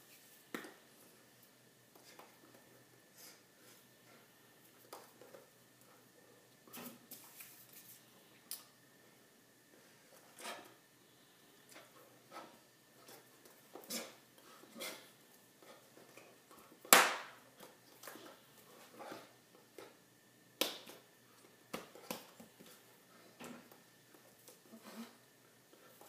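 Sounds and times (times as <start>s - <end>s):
hands clapping and slapping: 16.9s - 17.4s, 20.6s - 21.0s.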